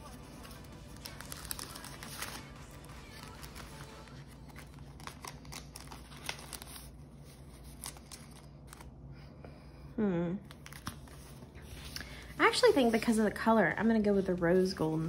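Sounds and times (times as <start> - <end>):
paper rustling: 0.0 - 8.9, 10.5 - 15.0
low steady hum: 0.0 - 15.0.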